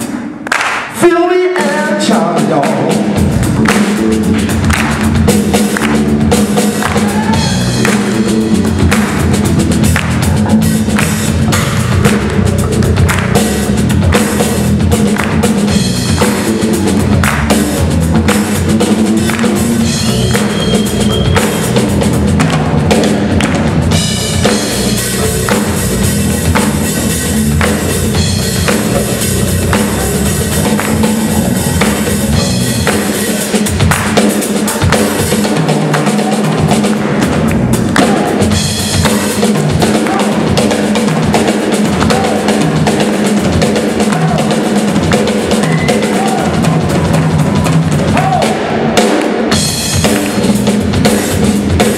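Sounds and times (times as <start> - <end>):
drum kit: 0.0 - 51.9
live band playing: 0.0 - 51.9
electric bass: 2.4 - 51.9.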